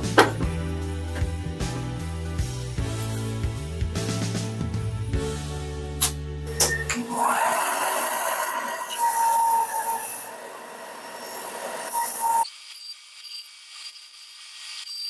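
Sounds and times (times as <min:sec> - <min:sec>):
belt sander sanding wood: 0:07.1 - 0:12.4.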